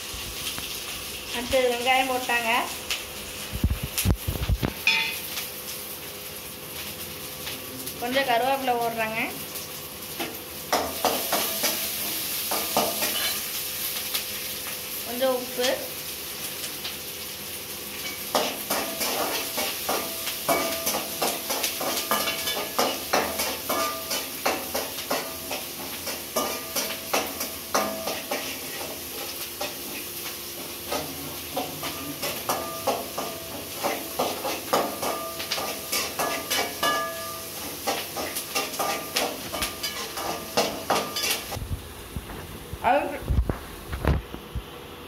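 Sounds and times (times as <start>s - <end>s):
frying sizzle: 0.0s - 45.0s
metal spoon scraping a pan: 10.8s - 13.5s, 18.0s - 41.6s.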